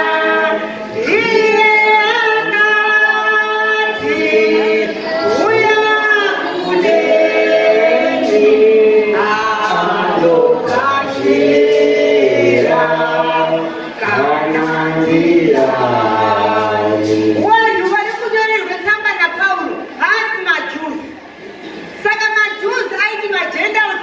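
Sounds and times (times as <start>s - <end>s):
group singing a hymn: 0.0s - 17.9s
sharp beat: 3.9s - 18.3s.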